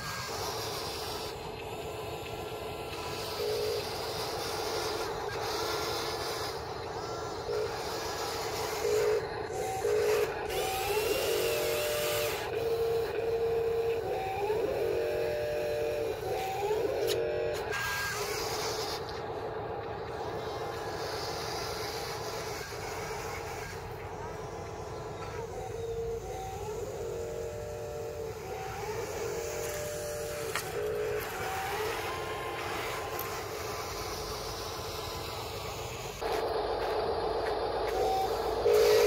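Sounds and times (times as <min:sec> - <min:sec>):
electric motors whining: 0:00.0 - 0:39.0.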